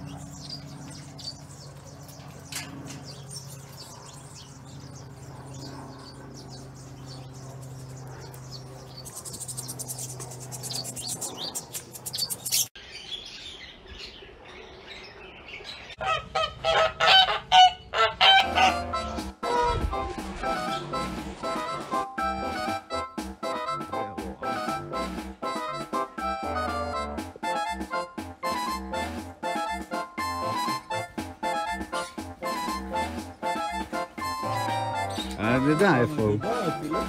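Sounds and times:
steady low hum: 0.0 - 12.8
small birds chirping: 0.0 - 16.1, 27.6 - 37.0.

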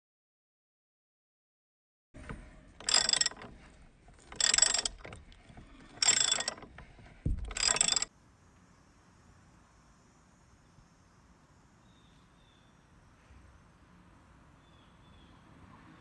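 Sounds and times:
ratchet wrench clicking: 2.8 - 3.5, 4.2 - 5.2, 6.0 - 6.8, 7.4 - 8.1.

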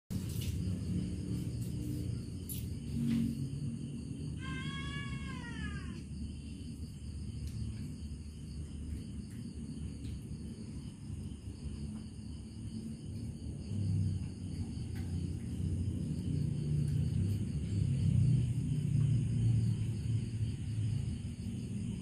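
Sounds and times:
steady low rumble: 0.1 - 22.0
cat meowing: 4.4 - 6.1.

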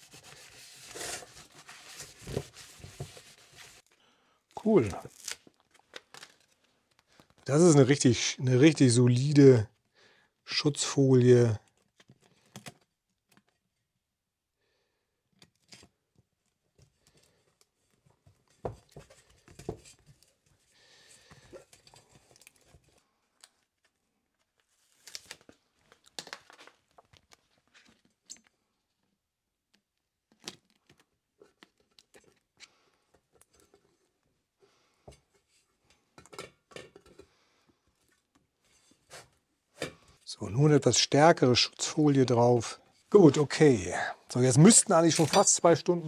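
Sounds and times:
plastic film crinkling and tearing: 4.8 - 7.4, 24.8 - 27.6, 44.7 - 45.8.

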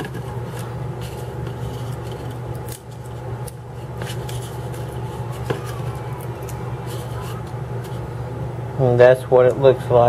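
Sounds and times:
seed skin crackling: 0.0 - 8.1
steady low hum: 0.0 - 10.0.

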